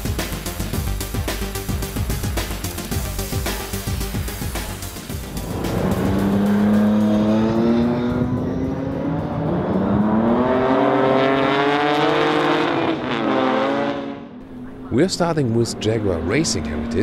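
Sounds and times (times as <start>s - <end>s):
racing car engine accelerating: 3.6s - 17.0s.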